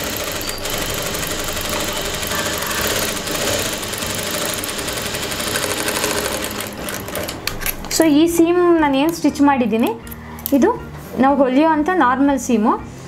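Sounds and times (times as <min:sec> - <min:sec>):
sewing machine running: 0:00.0 - 0:08.0.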